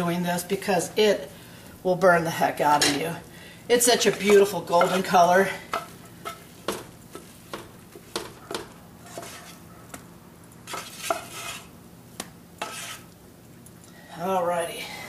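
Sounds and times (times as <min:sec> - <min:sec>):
spoon scraping cooking pot: 0:03.8 - 0:07.3, 0:08.0 - 0:09.7, 0:10.7 - 0:11.7, 0:12.6 - 0:13.1.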